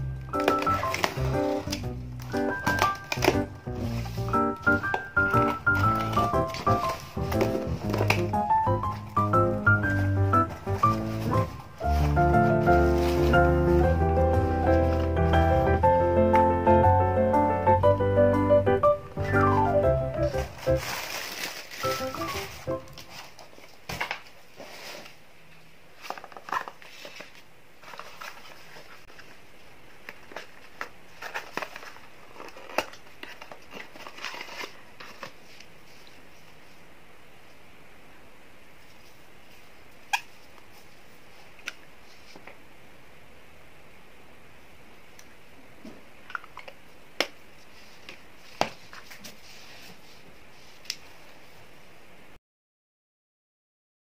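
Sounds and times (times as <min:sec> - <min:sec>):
cardboard box rustling and tapping: 0:00.4 - 0:08.3
soft rustling: 0:08.9 - 0:15.7, 0:47.6 - 0:51.7.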